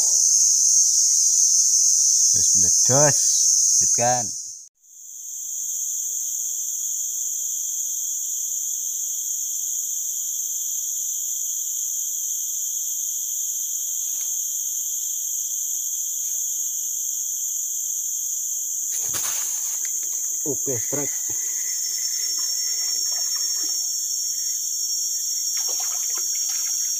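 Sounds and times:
insects droning shrilly: 0:00.0 - 0:26.9.

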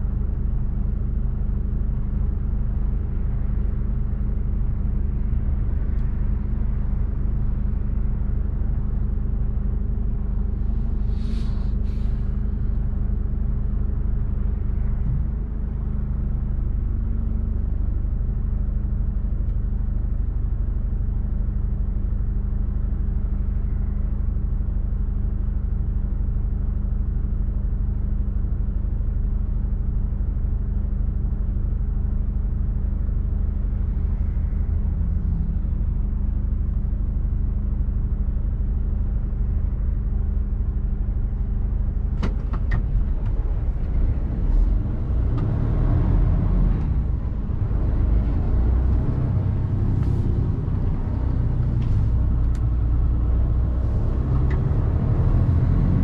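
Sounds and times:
diesel engine droning: 0:00.0 - 0:27.6, 0:28.8 - 0:56.0.

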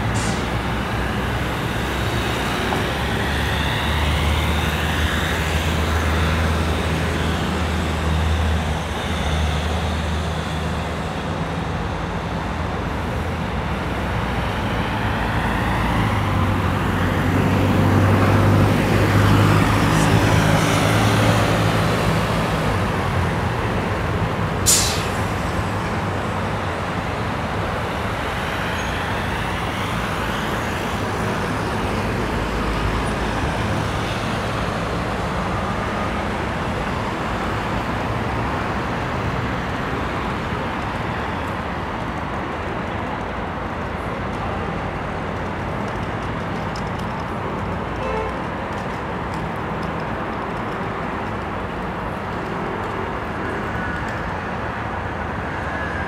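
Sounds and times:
heavy vehicle engine drone: 0:00.0 - 0:56.0
road traffic noise: 0:00.0 - 0:56.0
short sharp hiss: 0:24.7 - 0:25.6.

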